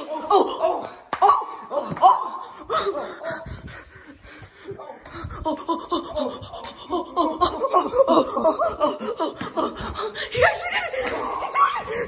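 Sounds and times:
people laughing hard: 5.2s - 12.0s.

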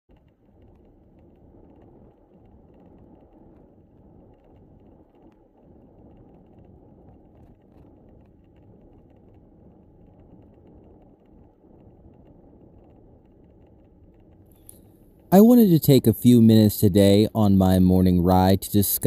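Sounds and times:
faint bicycle clicks and rattles: 0.1s - 15.3s
wind and rolling bicycle tyres: 0.1s - 15.3s.

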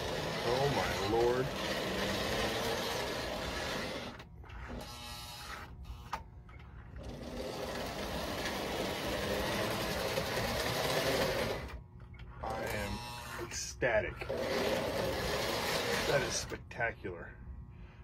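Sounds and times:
wheels rolling on rails: 0.0s - 4.2s, 7.0s - 11.8s, 14.3s - 16.5s
model train motor whirring: 0.0s - 6.2s, 7.0s - 11.8s, 14.2s - 16.6s.

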